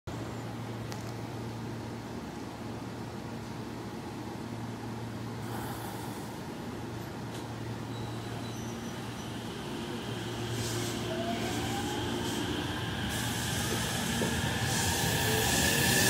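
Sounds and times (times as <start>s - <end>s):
electric train motor whine: 8.9s - 16.0s.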